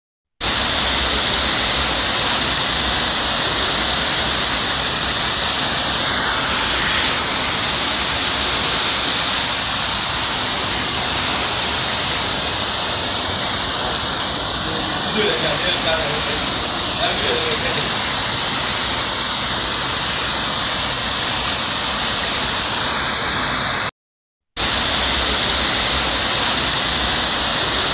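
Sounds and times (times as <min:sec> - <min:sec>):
floodwater rushing over a ledge: 0:00.4 - 0:23.9, 0:24.6 - 0:27.9.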